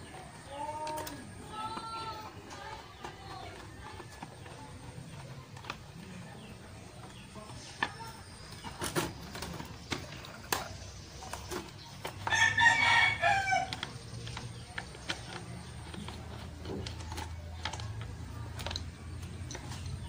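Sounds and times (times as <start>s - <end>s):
rooster crowing: 12.2s - 13.8s.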